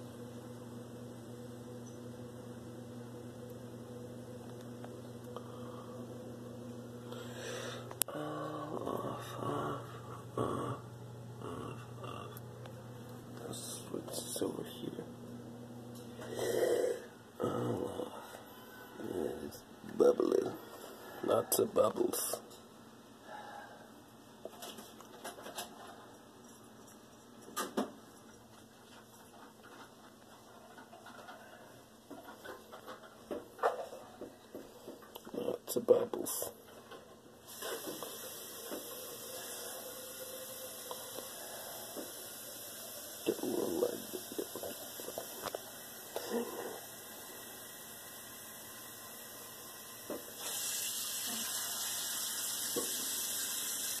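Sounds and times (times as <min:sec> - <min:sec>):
water heating in saucepan: 0:37.5 - 0:54.0.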